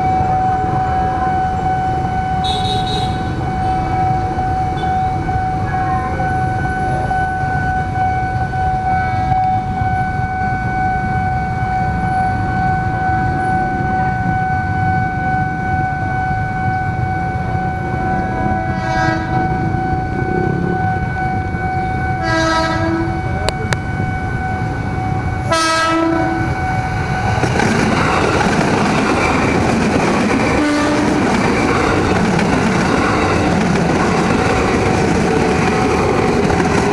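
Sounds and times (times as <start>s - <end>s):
level crossing warning tone: 0.0s - 36.9s
train horn: 0.8s - 4.0s, 4.7s - 27.4s, 30.3s - 32.2s.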